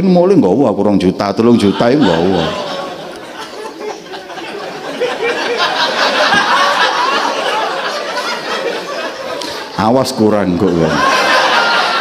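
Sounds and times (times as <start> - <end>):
audience laughing: 1.4 - 12.0.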